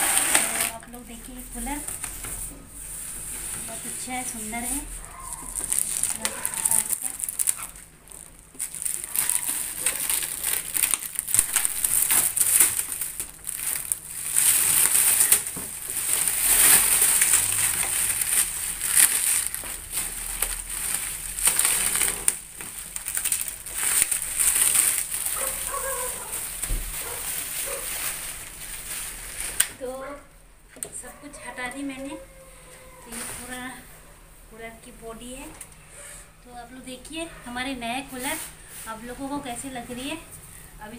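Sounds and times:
cardboard packaging rustling: 0.0s - 29.8s
plastic wrap crinkling: 0.0s - 30.0s, 32.1s - 33.9s.

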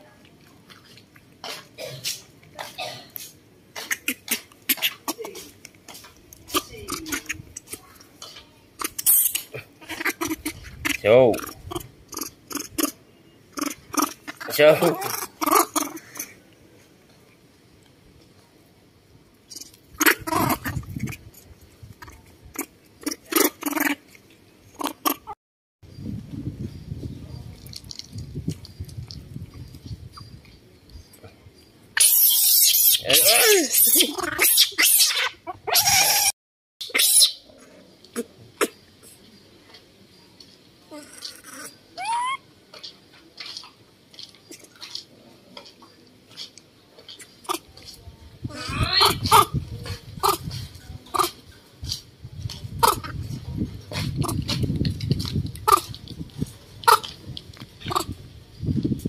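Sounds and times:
baby monkeys squealing: 6.6s - 7.6s, 8.8s - 13.0s, 13.6s - 16.3s, 19.6s - 21.3s, 32.0s - 37.5s, 40.9s - 42.4s, 48.5s - 49.6s, 50.2s - 50.5s, 52.8s - 53.2s, 57.8s - 58.1s.

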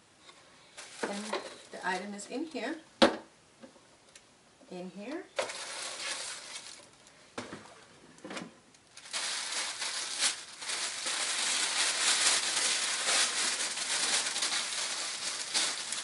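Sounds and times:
tissue paper rustling: 0.8s - 2.0s, 5.4s - 7.0s, 9.0s - 16.0s.

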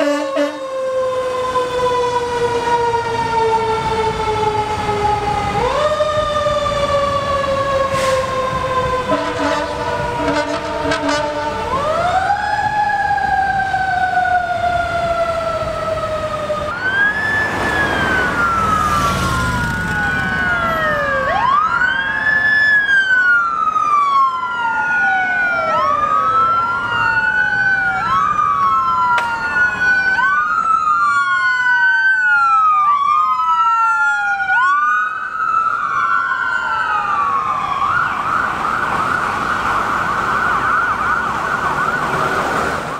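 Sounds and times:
siren yelping rapidly: 0.0s - 42.5s
emergency sirens wailing: 0.0s - 42.9s.

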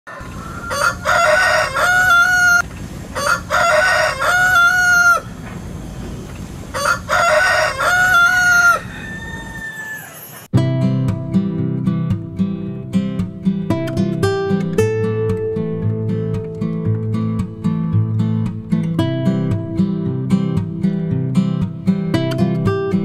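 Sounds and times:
rooster crowing: 0.1s - 5.4s, 6.7s - 10.5s.

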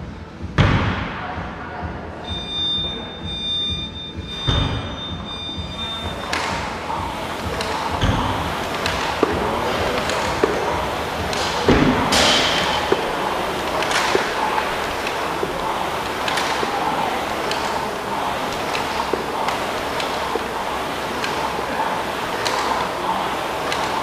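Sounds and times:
high steady electronic tone: 2.2s - 24.0s
rowing machine flywheel whooshing: 6.0s - 24.0s.

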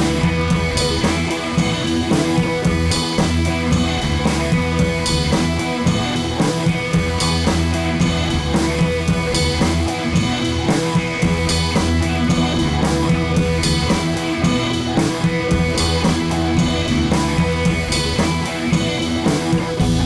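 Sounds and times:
guitar and drums music: 0.0s - 20.0s.

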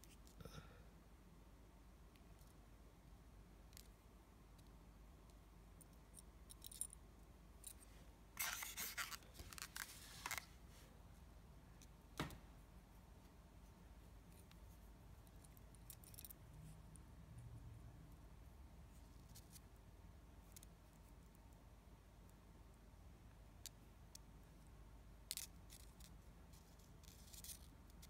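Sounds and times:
fishing line rustling: 8.4s - 10.9s.

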